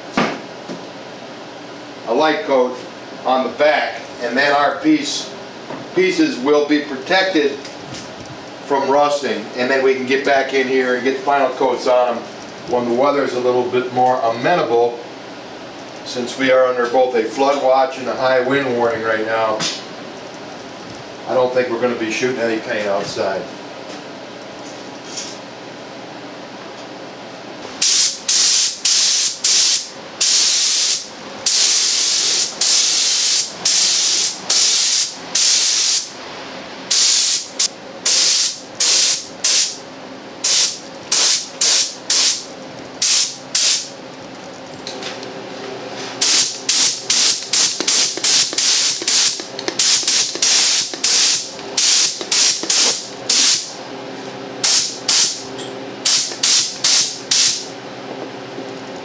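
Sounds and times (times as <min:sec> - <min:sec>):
paint spray gun hissing: 0:27.8 - 0:36.1, 0:36.9 - 0:39.8, 0:40.4 - 0:43.9, 0:46.2 - 0:53.7, 0:54.6 - 0:55.4, 0:56.0 - 0:57.7.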